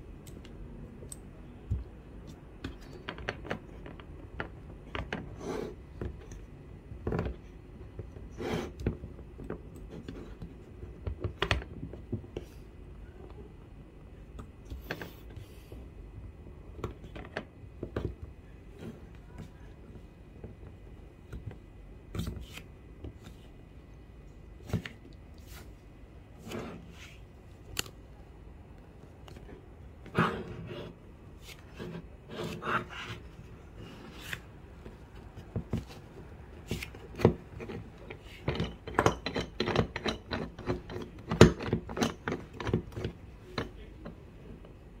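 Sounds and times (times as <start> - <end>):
table vise clicking and knocking: 37.1 - 44.2.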